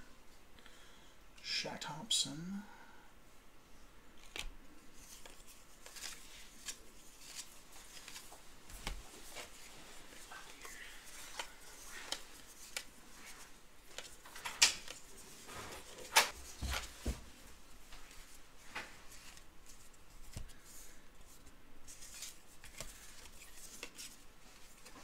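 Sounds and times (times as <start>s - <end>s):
cards scraping and rustling: 4.2s - 17.0s, 19.0s - 25.0s.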